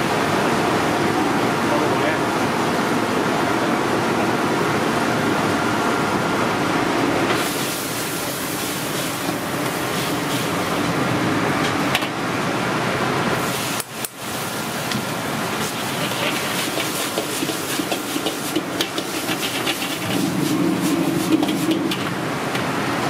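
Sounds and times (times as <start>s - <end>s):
gas burner hissing: 7.3s - 11.5s, 13.4s - 22.7s
food sizzling: 13.4s - 22.0s
metal ladle scraping wok: 15.8s - 22.0s.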